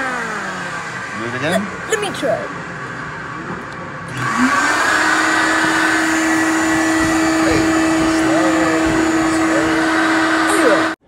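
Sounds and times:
air blower rushing hiss: 0:04.1 - 0:11.0.

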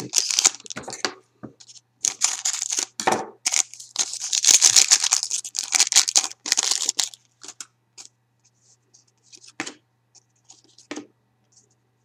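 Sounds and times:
foil wrapper crinkling: 0:00.0 - 0:00.8, 0:01.6 - 0:07.6.

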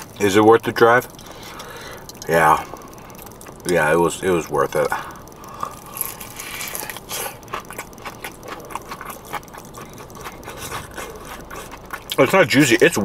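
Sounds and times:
crunching fried chicken: 0:00.0 - 0:13.0
wet mouth sounds: 0:05.4 - 0:12.4.

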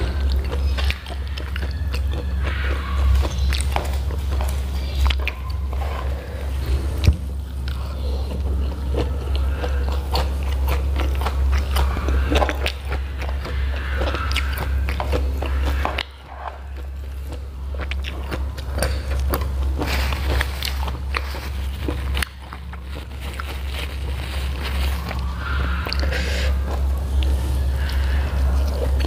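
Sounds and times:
person chewing food: 0:00.0 - 0:29.0
steady low hum: 0:00.0 - 0:29.0.

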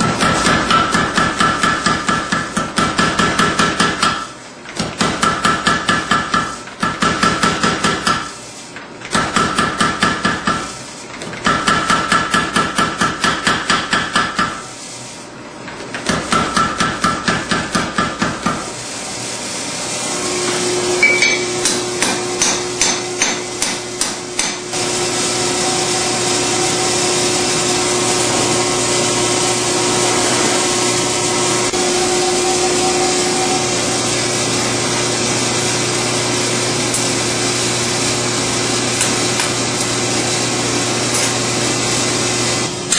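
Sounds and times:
power hammer pounding steel: 0:00.0 - 0:08.4, 0:09.1 - 0:10.7, 0:11.4 - 0:14.7, 0:16.0 - 0:18.7, 0:21.0 - 0:24.8.

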